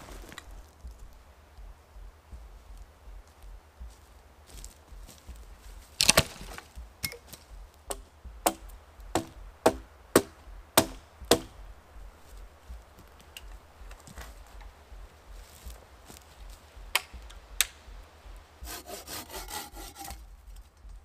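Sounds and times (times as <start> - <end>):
hard wooden knocks: 5.3 - 15.8
wooden pole hitting ground: 5.8 - 11.7.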